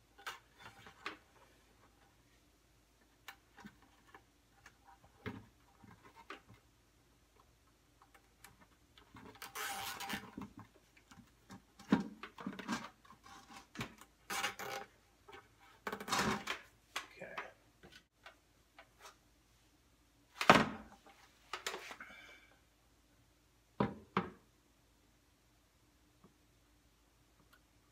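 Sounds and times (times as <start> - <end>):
scratchy rubbing of wire: 9.4 - 10.2.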